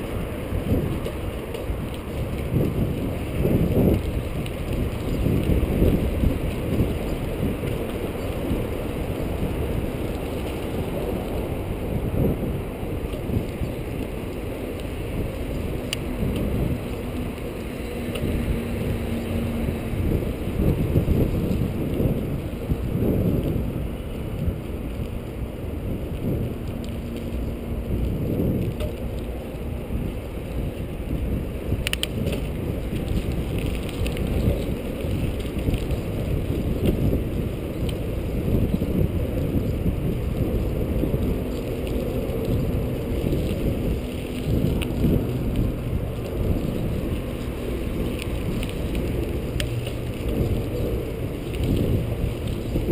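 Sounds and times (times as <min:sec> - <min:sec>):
bicycle tyre and wind rumble: 0:00.0 - 0:52.9.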